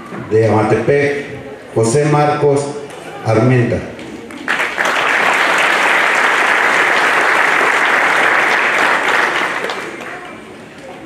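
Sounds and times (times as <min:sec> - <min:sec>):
crowd applause: 0:04.3 - 0:10.6.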